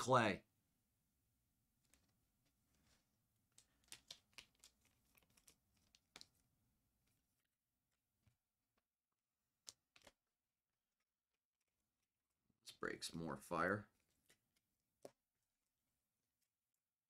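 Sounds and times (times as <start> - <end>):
trading cards clicking and rustling: 1.8 - 6.4.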